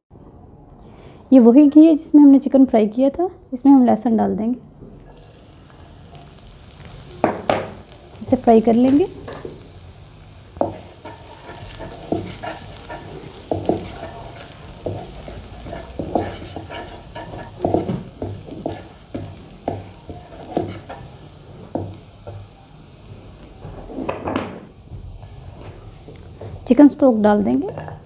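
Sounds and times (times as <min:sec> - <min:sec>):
garlic sizzling in oil: 0:05.1 - 0:27.9
wooden spatula scraping pan: 0:10.6 - 0:21.1.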